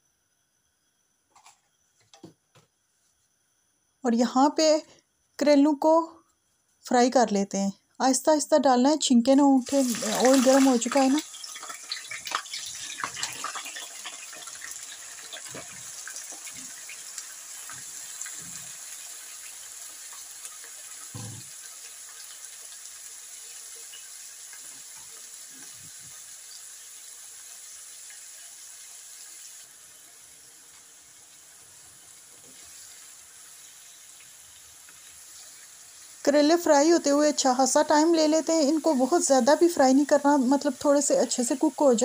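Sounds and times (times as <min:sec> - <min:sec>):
slices sizzling in hot oil: 0:08.9 - 0:42.0.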